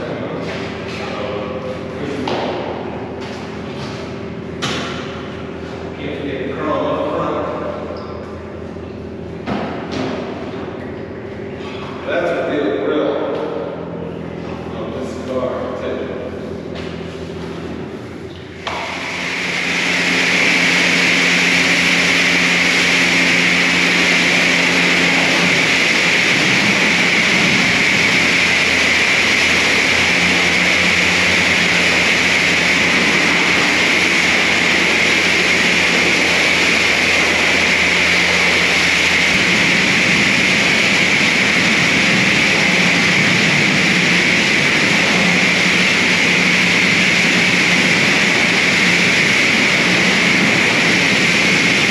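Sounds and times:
low hum: 0.0s - 51.9s
pressure washer spraying water: 18.5s - 51.9s.

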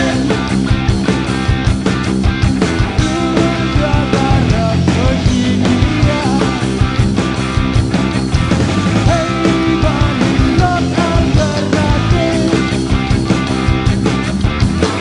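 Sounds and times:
person singing: 0.0s - 0.5s, 3.0s - 7.0s, 9.0s - 13.0s
drum kit: 0.0s - 15.0s
electric guitars: 0.0s - 15.0s.

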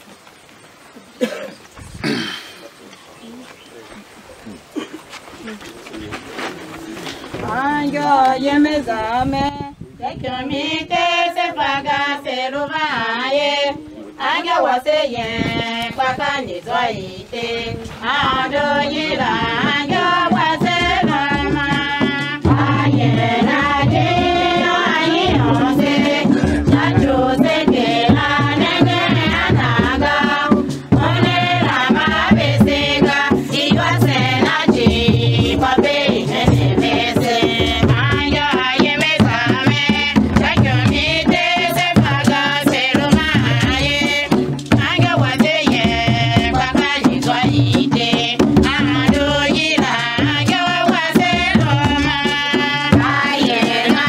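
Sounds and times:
group singing: 7.4s - 9.3s, 10.1s - 54.0s
steady drum beat: 18.0s - 54.0s.

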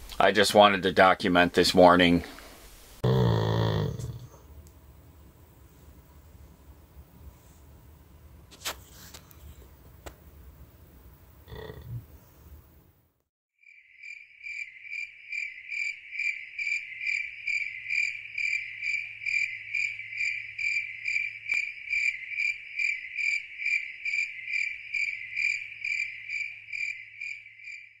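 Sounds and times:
cricket chirping: 13.6s - 28.0s.

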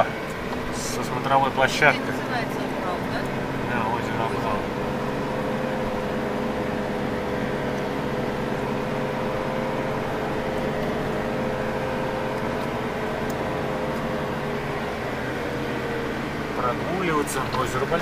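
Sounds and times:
car engine and road noise hum: 0.0s - 18.0s.

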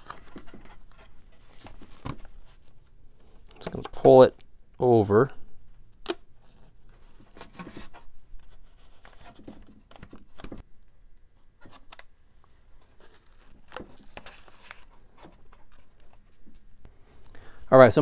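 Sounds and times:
light crinkles taps and scrapes: 11.6s - 16.7s.

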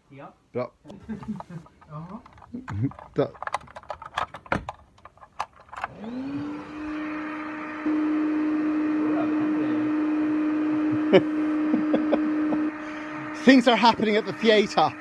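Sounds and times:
electric air pump humming: 5.8s - 15.0s.

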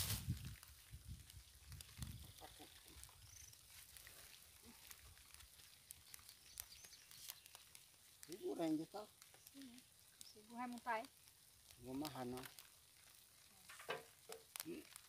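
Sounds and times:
low thuds and rustling of sack: 0.0s - 0.6s.

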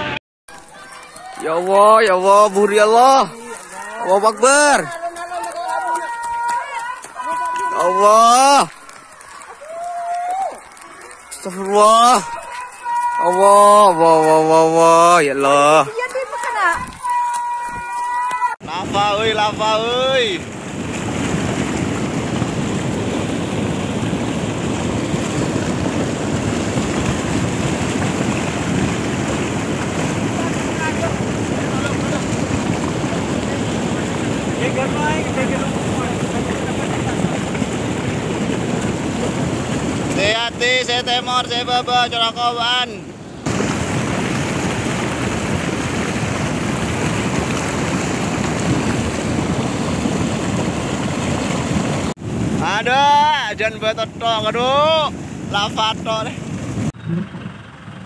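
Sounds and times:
mudflow rushing over rocks: 0.0s - 57.0s.

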